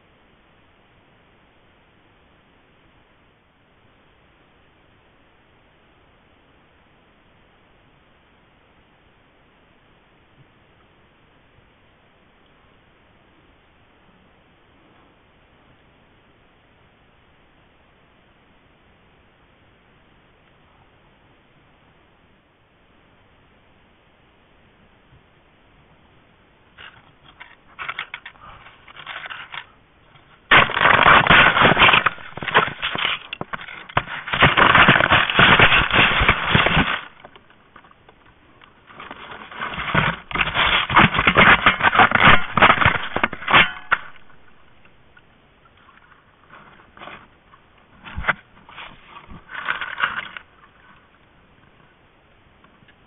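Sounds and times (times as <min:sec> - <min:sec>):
fur scraping against camera: 0:38.9 - 0:44.5.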